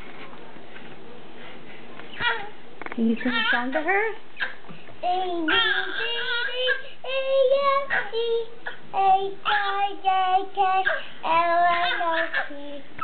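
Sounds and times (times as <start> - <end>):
boy singing a slow song: 6.6 - 13.0.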